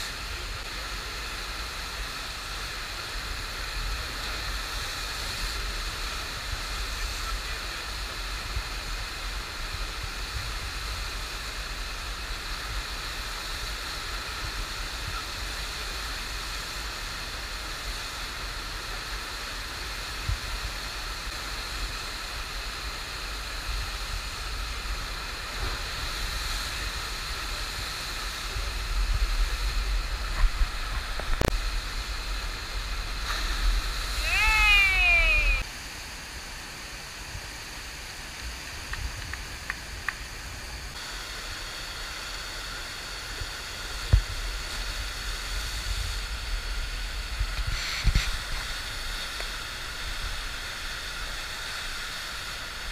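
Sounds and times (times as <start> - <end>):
rushing water: 0.0 - 52.9.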